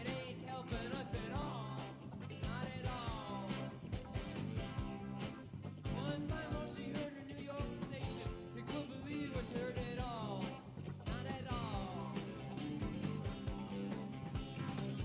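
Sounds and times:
rock song: 0:00.0 - 0:15.0
steady drum beat: 0:00.0 - 0:15.0.

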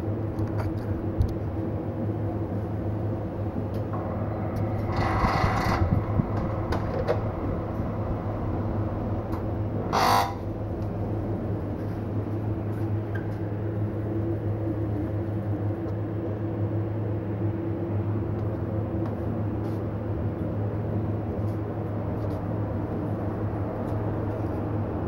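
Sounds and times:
low machine hum: 0:00.0 - 0:25.0
rubbing scraping noise: 0:04.8 - 0:06.2.

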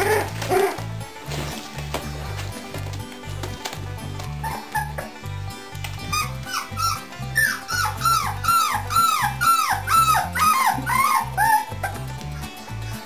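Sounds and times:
puppies whimpering and yipping: 0:00.0 - 0:00.9, 0:04.4 - 0:05.1, 0:06.0 - 0:12.2.

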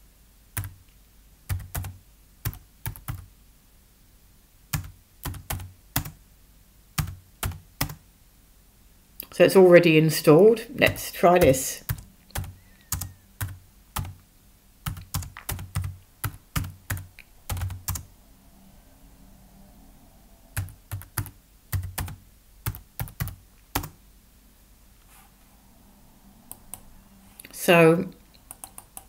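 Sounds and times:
computer keyboard typing: 0:00.6 - 0:00.8, 0:01.5 - 0:03.3, 0:04.7 - 0:06.2, 0:07.0 - 0:08.0, 0:10.9 - 0:14.2, 0:14.8 - 0:18.1, 0:20.6 - 0:24.0, 0:28.4 - 0:29.0.

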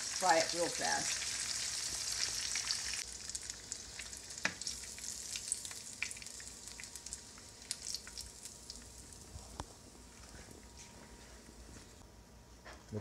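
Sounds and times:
shrimp sizzling in oil: 0:00.0 - 0:09.3.

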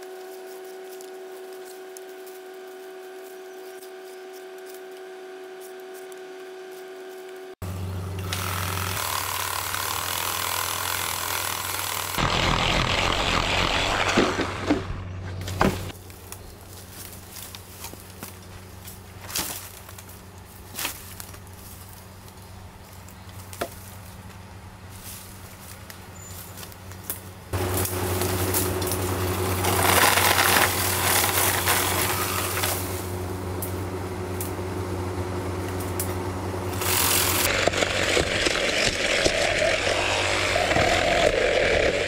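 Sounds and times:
power tool motor running: 0:00.0 - 0:15.0, 0:36.2 - 0:42.0.

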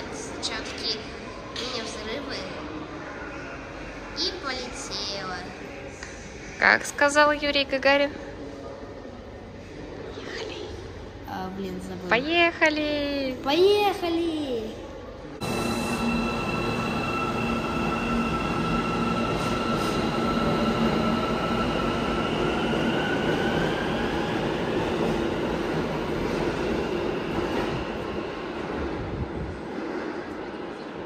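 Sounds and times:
train whine rising in pitch: 0:15.4 - 0:24.3.

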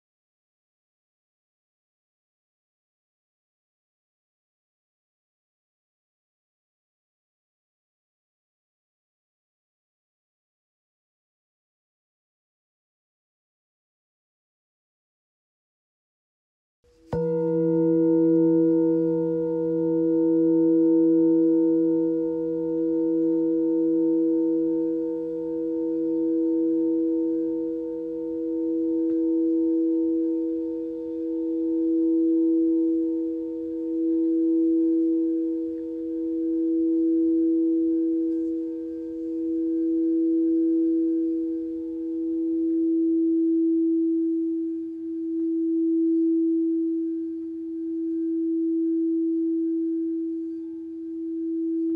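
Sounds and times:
singing bowl ringing: 0:17.1 - 0:51.9.

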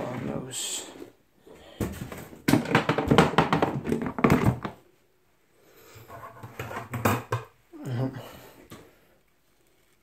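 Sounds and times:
objects knocking and tapping: 0:01.8 - 0:04.8, 0:05.9 - 0:07.6.

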